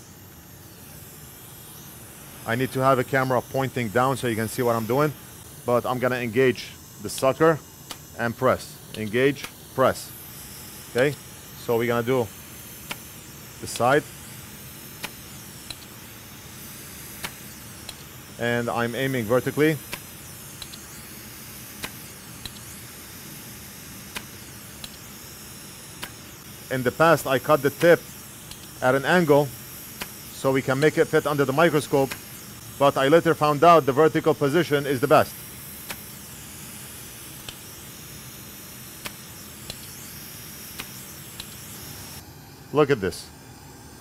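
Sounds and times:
faint hiss: 0:00.0 - 0:43.4
solder sucker clicks: 0:07.9 - 0:08.1, 0:15.0 - 0:15.9, 0:17.2 - 0:18.1, 0:19.9 - 0:20.9, 0:21.8 - 0:22.7, 0:27.8 - 0:28.8, 0:30.0 - 0:30.2, 0:35.8 - 0:36.1, 0:37.4 - 0:37.6, 0:39.0 - 0:40.0, 0:40.8 - 0:41.7.

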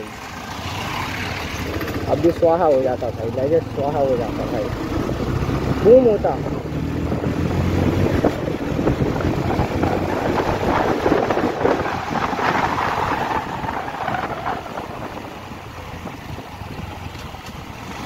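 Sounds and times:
motorcycle engine accelerating: 0:00.0 - 0:18.0
wind rushing over microphone: 0:04.6 - 0:18.0.

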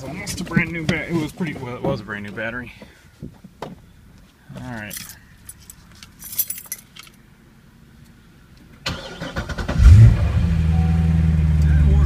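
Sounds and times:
car engine starting and idling: 0:05.5 - 0:12.0.

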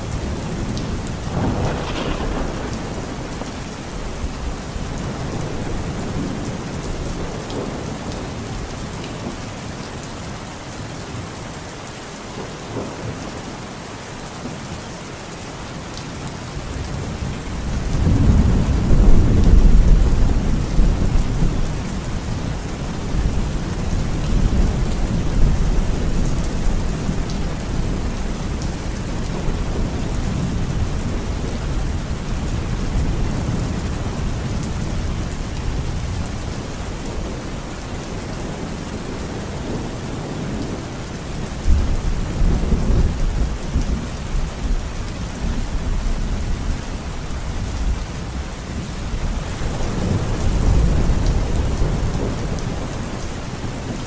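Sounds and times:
thunder rumbling: 0:00.0 - 0:08.3, 0:16.9 - 0:37.6, 0:47.7 - 0:54.0
heavy rain pouring: 0:00.0 - 0:54.0.

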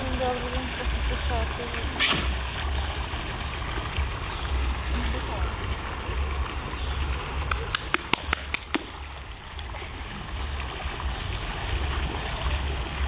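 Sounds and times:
water splashing and running: 0:00.0 - 0:13.0.

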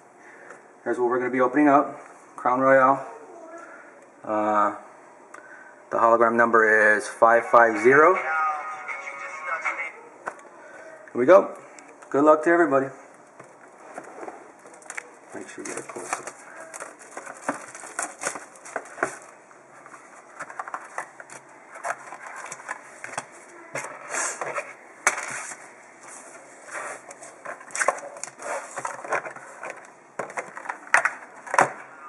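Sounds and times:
plastic shrink wrap crinkling: 0:14.6 - 0:23.5.

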